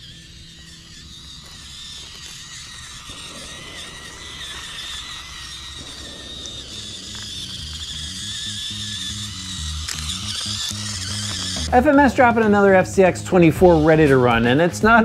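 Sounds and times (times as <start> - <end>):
toy car motor whining: 0.0 - 15.0.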